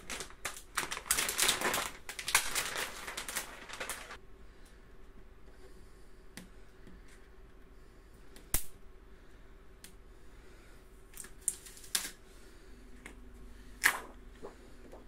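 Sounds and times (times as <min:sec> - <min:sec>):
plastic foil crinkling: 0:00.0 - 0:04.2, 0:11.2 - 0:12.2.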